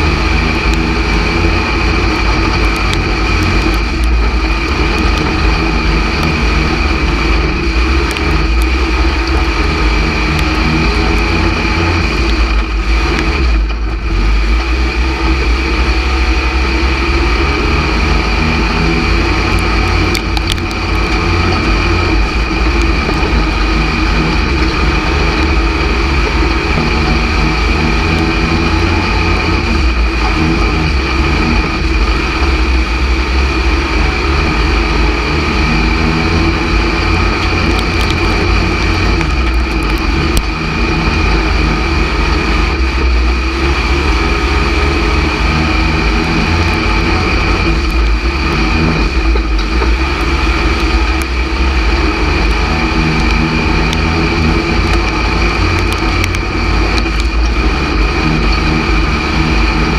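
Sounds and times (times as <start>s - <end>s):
race car engine running: 0.0s - 59.9s
sharp clicks: 19.4s - 21.7s, 37.4s - 40.6s.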